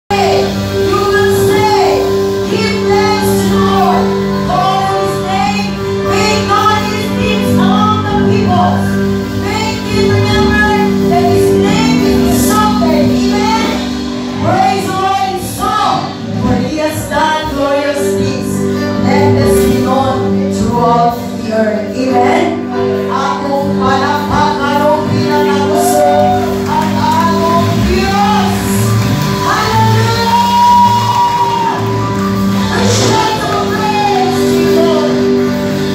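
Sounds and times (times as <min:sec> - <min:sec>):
band with drums and guitar: 0:00.1 - 0:35.9.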